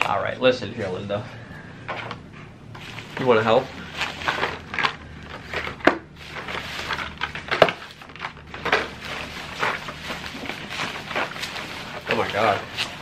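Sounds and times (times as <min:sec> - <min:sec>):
plastic bag and bubble wrap rustling: 0:02.8 - 0:13.0
plastic packs clicking on table: 0:04.0 - 0:13.0.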